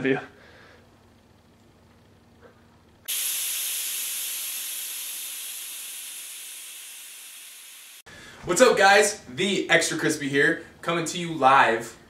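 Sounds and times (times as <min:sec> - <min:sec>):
steam-like hiss: 0:03.1 - 0:08.0.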